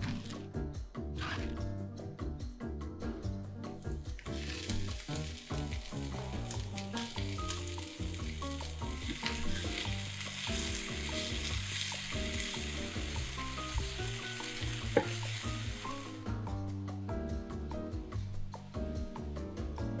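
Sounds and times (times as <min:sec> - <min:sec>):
background music: 0:00.0 - 0:20.0
vegetables sizzling in oil: 0:04.0 - 0:16.3
wooden spatula scraping and tapping: 0:09.0 - 0:11.8, 0:14.9 - 0:15.2.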